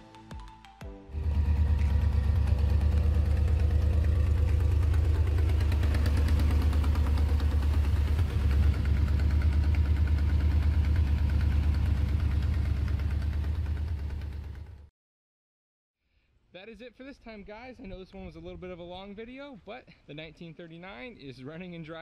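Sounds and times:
v-eight engine idling: 1.2 - 14.9.

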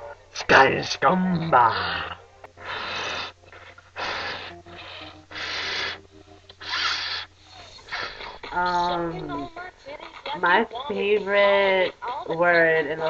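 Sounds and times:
person blowing into a balloon: 2.7 - 6.0, 6.6 - 7.3.

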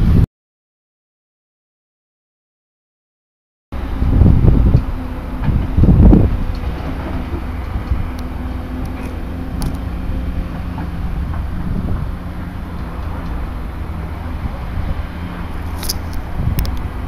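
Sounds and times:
wind gust on microphone: 0.0 - 0.2, 3.8 - 17.0
excavator diesel engine running: 3.8 - 17.0.

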